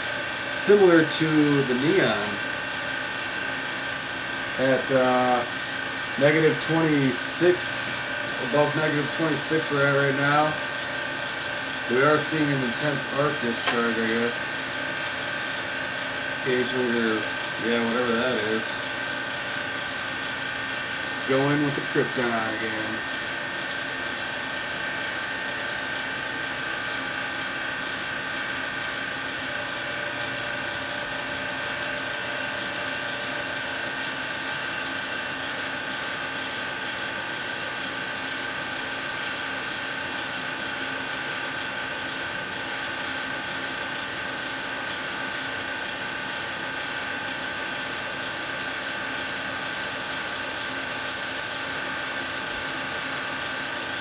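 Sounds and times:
tesla coil humming: 0.0 - 27.3, 50.8 - 53.1
electric arcs hissing: 11.9 - 14.6.

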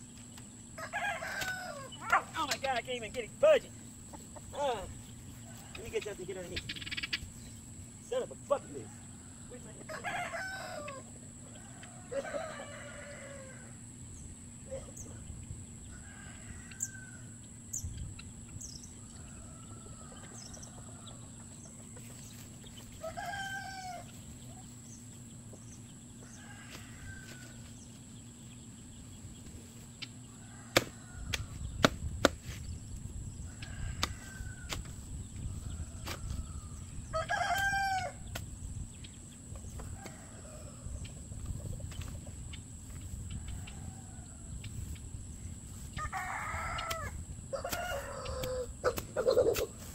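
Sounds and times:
chickens calling: 0.0 - 49.9
rooster crowing: 0.7 - 2.4, 8.7 - 13.9, 15.8 - 17.4, 19.0 - 21.4, 23.0 - 24.2, 26.2 - 27.7, 30.2 - 31.7, 33.4 - 38.3, 39.8 - 41.0, 43.3 - 44.6, 45.8 - 49.7.

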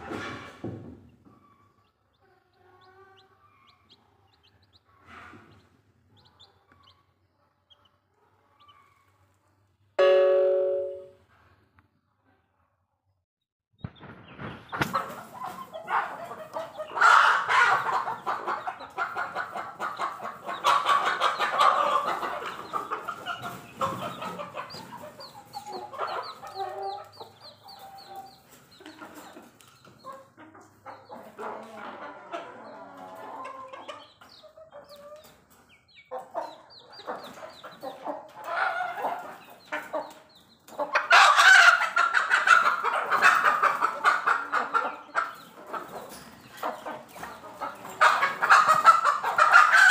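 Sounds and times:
loud drawn-out chicken calls: 0.0 - 9.7, 13.8 - 49.9
chicks peeping: 0.0 - 10.9, 13.8 - 49.9
chickens clucking: 0.0 - 11.0, 13.8 - 49.9.

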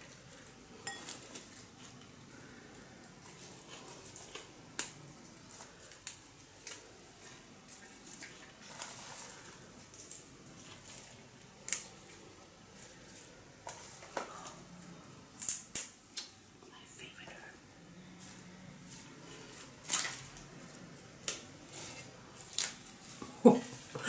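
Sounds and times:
herb stems snapping: 15.4 - 16.4, 21.2 - 21.5, 22.4 - 22.9.

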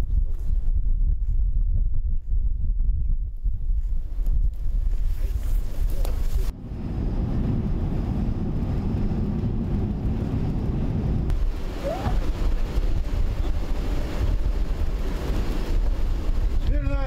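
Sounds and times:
wind rumbling on microphone: 0.0 - 17.0
car driving drone from inside: 6.5 - 16.5.

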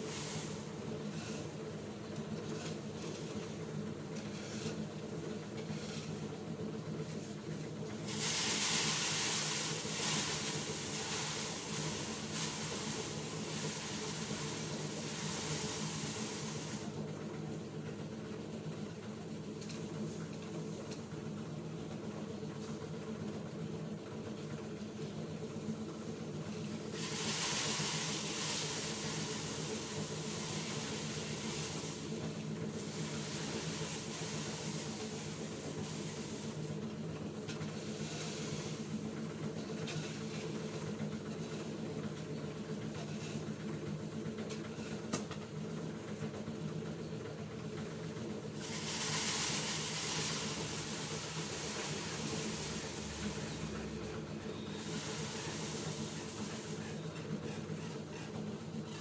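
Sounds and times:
rice scraped across dirt: 8.1 - 16.4.

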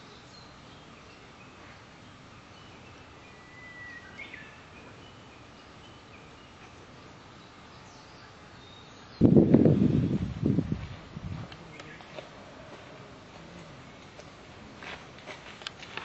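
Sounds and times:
whistled bird note: 3.3 - 4.5.

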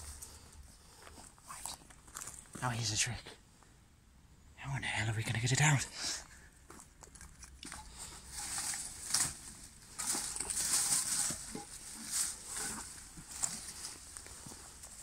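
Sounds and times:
undergrowth rustling and crackling: 6.6 - 15.0
chicken wire scrunching: 7.0 - 15.0.

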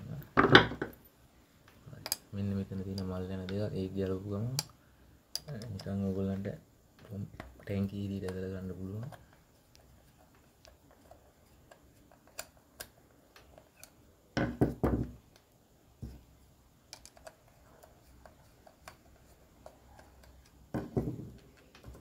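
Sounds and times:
metal and plastic parts clicking: 16.9 - 22.0.

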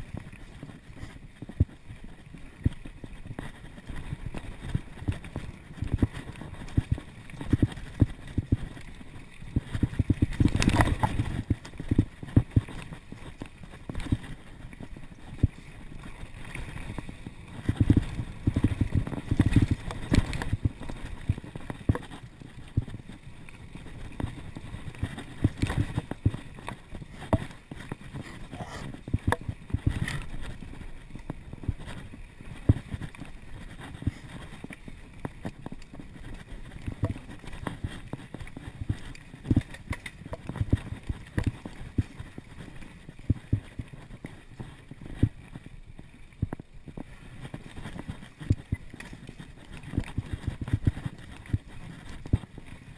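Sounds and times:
bike knocking and rattling: 2.6 - 43.7.

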